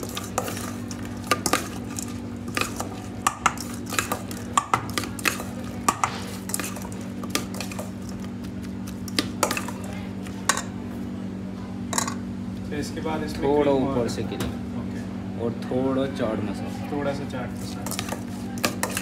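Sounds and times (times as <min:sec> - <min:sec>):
steady low hum: 0:00.0 - 0:19.0
spoon scraping metal bowl: 0:17.8 - 0:19.0.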